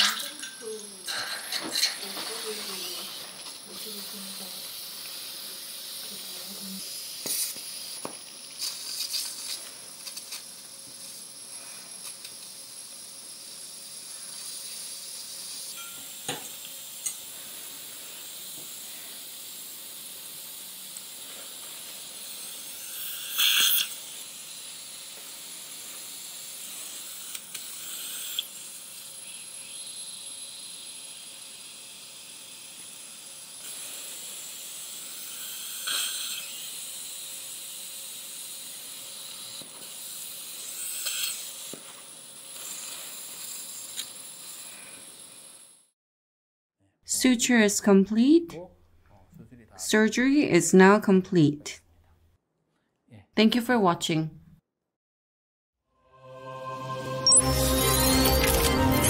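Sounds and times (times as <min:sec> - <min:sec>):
dental suction hissing: 0:02.3 - 0:45.8.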